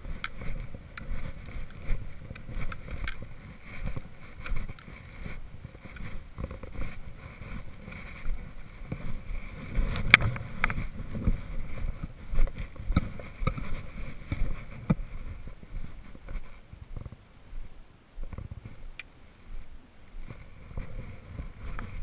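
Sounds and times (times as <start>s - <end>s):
trekking pole tips clicking: 0.0s - 11.3s, 11.9s - 15.1s, 18.2s - 19.2s
boot footsteps on dirt: 0.0s - 22.0s
wind rumble on microphone: 0.0s - 22.0s.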